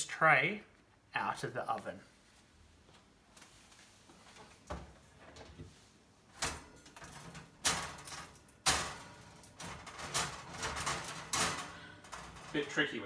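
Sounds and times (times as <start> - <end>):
tray rattling: 6.4 - 13.0.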